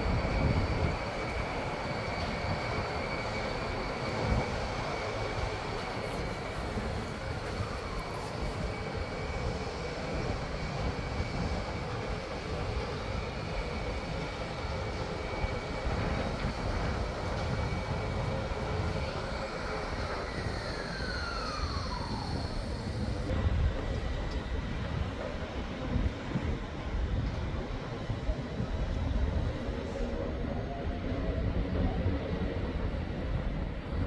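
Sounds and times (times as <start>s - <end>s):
city traffic rumble: 0.0s - 34.0s.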